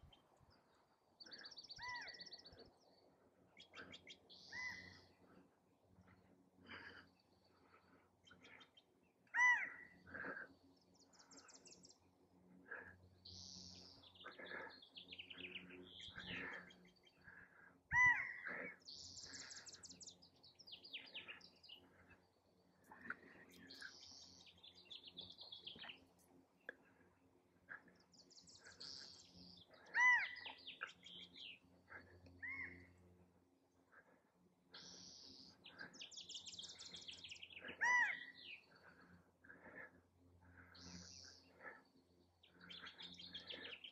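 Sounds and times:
birds chirping and trilling: 0.0s - 43.9s
quail calling: 29.9s - 30.9s, 37.6s - 38.4s.

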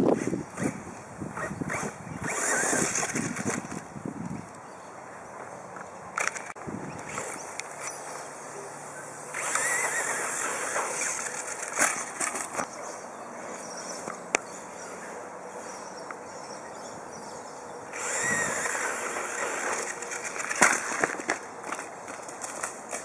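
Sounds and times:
rc car motor whining: 1.4s - 3.6s, 9.0s - 12.2s, 17.9s - 21.0s.

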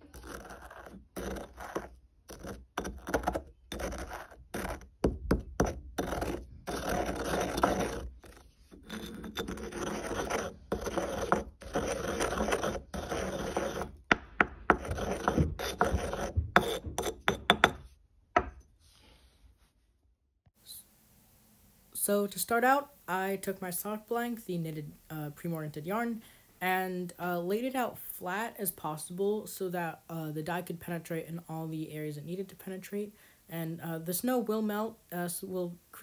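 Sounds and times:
grinding in stone mortar: 0.0s - 17.9s
pestle knocking on stone: 5.0s - 6.4s, 13.8s - 18.6s.

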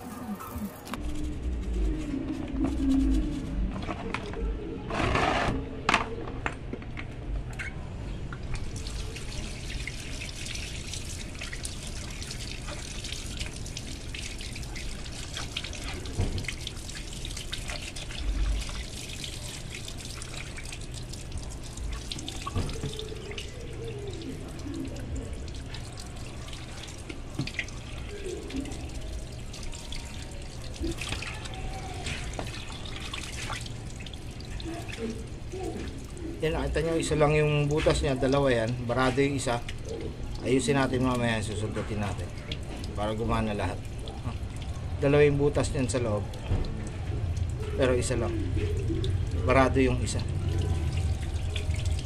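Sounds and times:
water splashes: 8.4s - 52.0s
garden hose splashing onto concrete: 8.5s - 44.7s.

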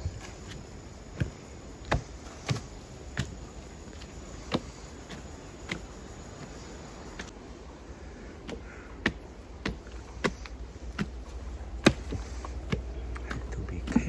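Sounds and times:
footsteps on wooden steps: 0.0s - 14.0s.

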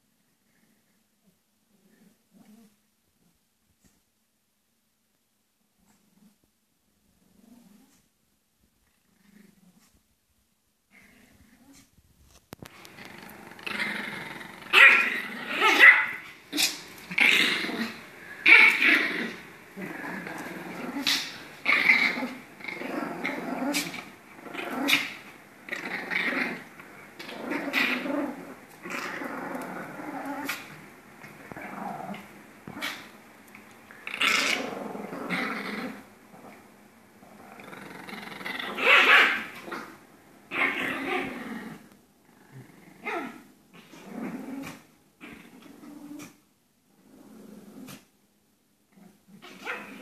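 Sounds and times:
dogs growling: 12.7s - 33.2s, 33.9s - 48.1s.

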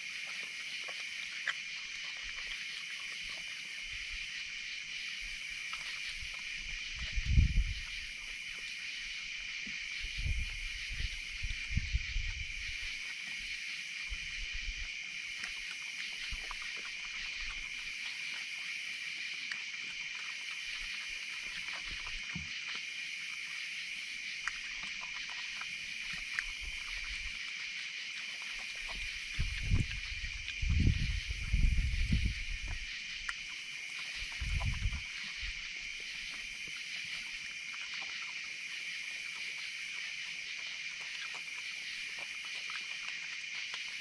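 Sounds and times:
high chirping insects: 0.0s - 44.0s
insects trilling: 0.0s - 44.0s
animals eating clicks and thumps: 24.4s - 27.5s, 28.2s - 35.7s, 40.3s - 44.0s.

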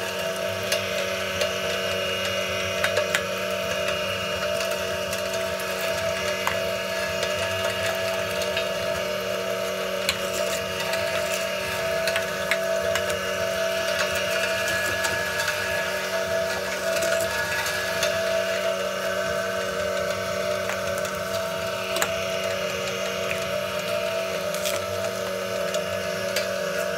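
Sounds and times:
meat grinder motor running: 0.0s - 26.9s
sharp clicks in grinder: 0.7s - 9.0s, 19.6s - 26.9s.

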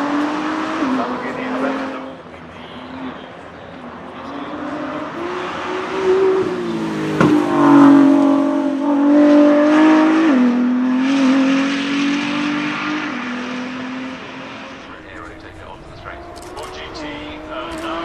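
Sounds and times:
car engine accelerating hard: 0.0s - 18.0s.

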